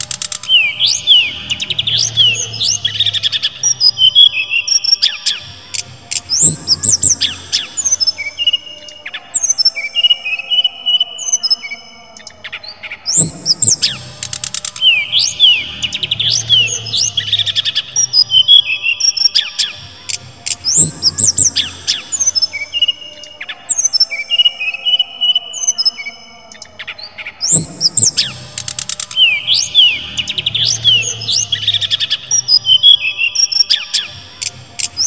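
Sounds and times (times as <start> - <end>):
fast rattling bird trill: 0.0 - 4.3
caged bird singing whistles: 0.0 - 11.8, 13.1 - 26.1, 27.4 - 34.1.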